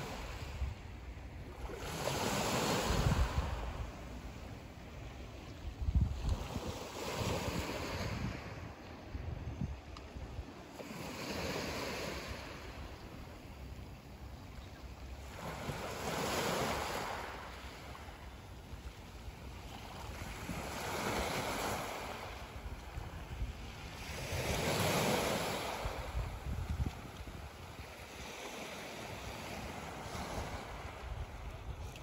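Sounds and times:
wind rumble on microphone: 2.5 - 4.4, 5.4 - 10.6, 18.1 - 32.0
waves breaking on pebble beach: 23.6 - 31.1.

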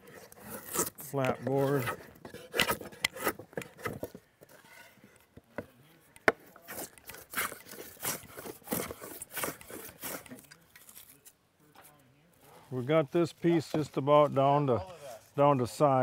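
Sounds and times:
drawknife scraping wood: 0.0 - 5.3, 6.2 - 11.2.

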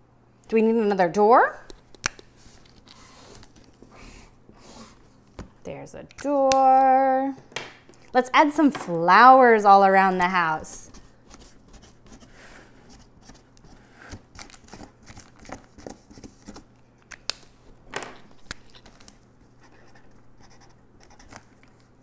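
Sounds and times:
marker scratching on cardboard: 19.6 - 21.4.

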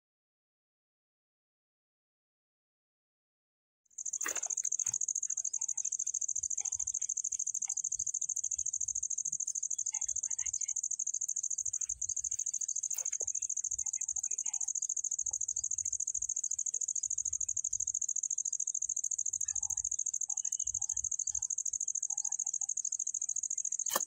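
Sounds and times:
insects trilling: 4.0 - 24.0.

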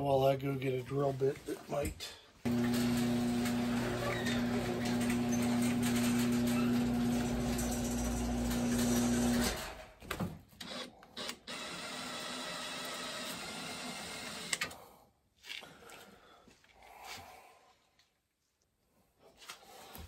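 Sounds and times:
drill click: 2.5 - 9.7, 10.6 - 14.8
cordless drill drilling metal: 2.5 - 9.8, 10.6 - 14.8.

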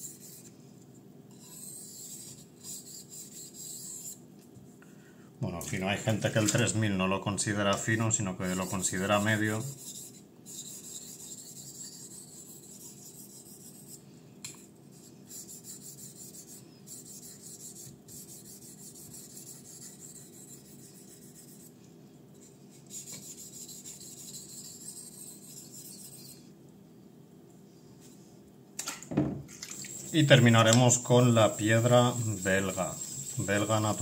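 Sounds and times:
knife scraping on whetstone: 1.3 - 4.2, 8.5 - 14.0, 22.4 - 26.5, 29.7 - 34.0.

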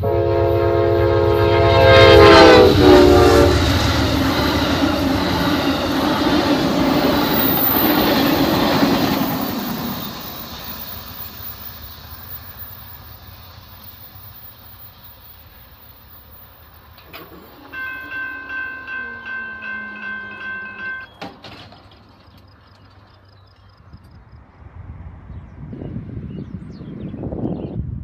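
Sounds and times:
passing train: 0.0 - 28.0
railroad crossing bell ringing: 1.2 - 22.8
crossing gate click: 16.9 - 23.1.

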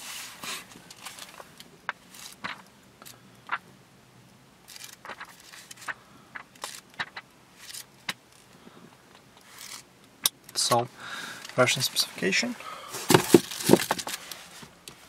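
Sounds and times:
pages flipping: 2.1 - 2.6, 4.7 - 7.9, 13.0 - 14.7.

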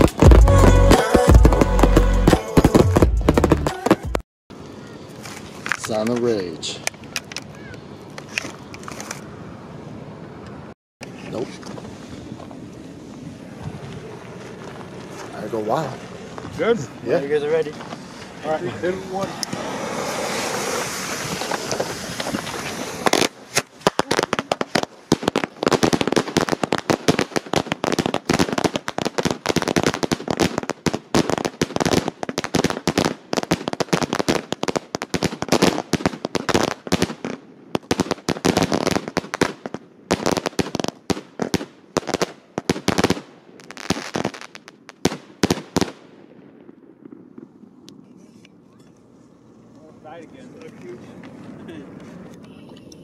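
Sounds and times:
fireworks barrage with crackling: 0.0 - 4.2, 11.0 - 48.3
fountain firework hissing: 18.0 - 28.2.

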